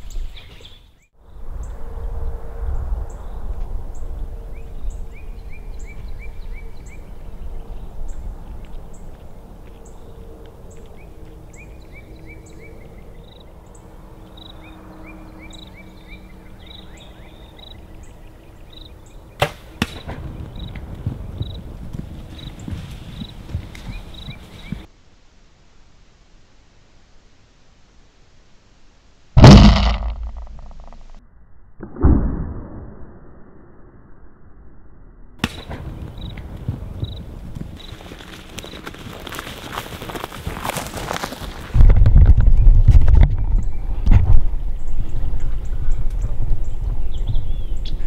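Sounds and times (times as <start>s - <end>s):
birds chirping: 0.0s - 1.4s, 3.1s - 24.9s, 44.7s - 48.0s
bow shot sharp cracks: 19.4s - 20.3s, 29.4s - 31.2s, 35.4s - 35.9s
hogs running through grass: 19.8s - 24.9s, 36.0s - 42.6s
low rumble: 29.4s - 37.6s.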